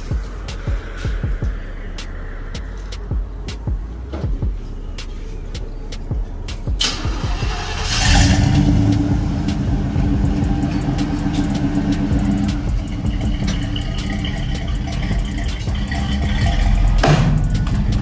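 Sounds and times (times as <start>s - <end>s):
pickup truck engine revving: 6.5s - 18.0s.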